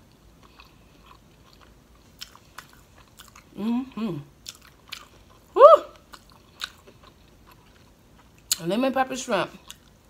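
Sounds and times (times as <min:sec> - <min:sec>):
chewing fried shrimp: 0:00.0 - 0:08.8, 0:09.5 - 0:10.0
person humming: 0:03.6 - 0:04.3, 0:05.6 - 0:06.0.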